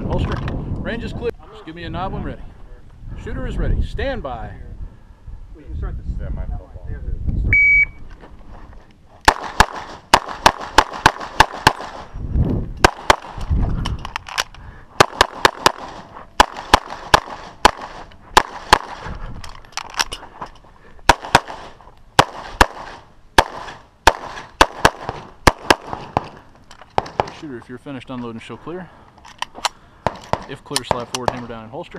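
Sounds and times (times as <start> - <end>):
rapid pistol shots: 9.3 - 12.1, 12.8 - 13.4, 15.0 - 19.1, 21.1 - 26.4, 27.0 - 27.4.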